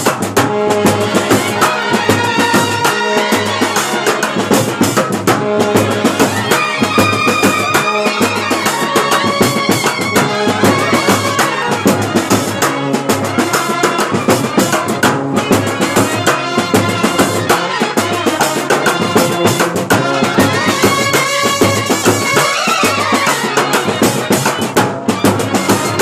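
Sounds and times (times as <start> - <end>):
fast side drum beating: 0.0 - 26.0
trumpets and clarinet playing tune: 0.4 - 26.0.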